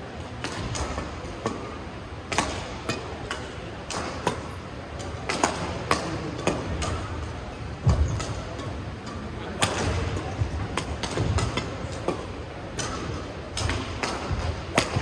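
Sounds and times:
sports hall background noise: 0:00.0 - 0:15.0
rackets hitting shuttlecock: 0:00.3 - 0:15.0.

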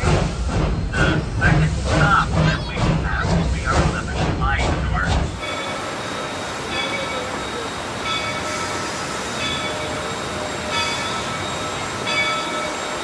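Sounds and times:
train rolling on track: 0:00.0 - 0:13.0
high ringing wheel tones: 0:05.4 - 0:13.0.

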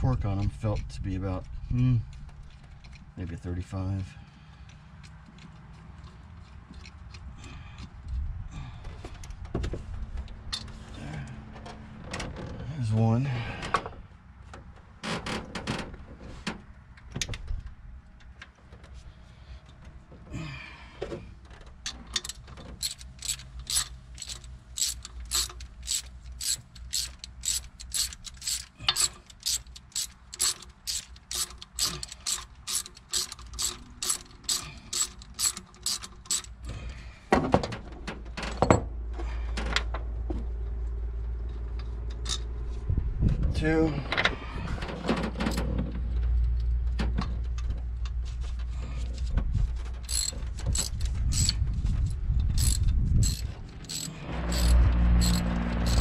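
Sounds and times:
hand ratchet clicking: 0:22.1 - 0:36.7, 0:50.0 - 0:51.6, 0:52.5 - 0:56.0.

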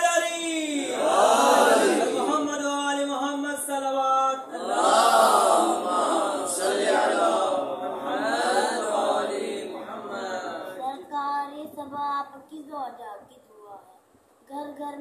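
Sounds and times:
voices chanting together: 0:00.8 - 0:02.5, 0:04.5 - 0:10.8.

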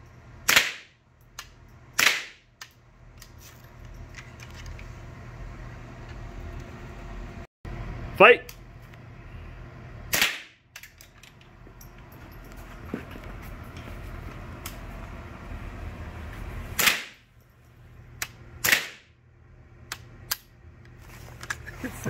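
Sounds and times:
rifle shots: 0:00.5 - 0:00.9, 0:10.1 - 0:10.6, 0:16.8 - 0:17.2, 0:18.6 - 0:19.1.

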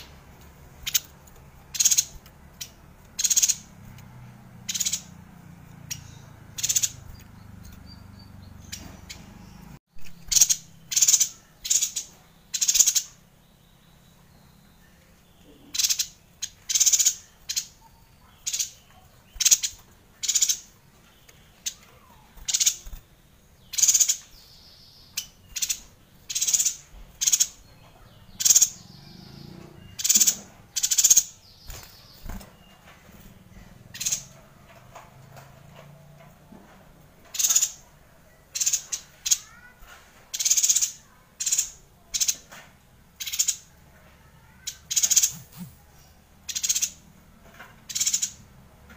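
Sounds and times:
bird calling with harsh high notes: 0:38.5 - 0:42.4, 0:43.2 - 0:47.0.

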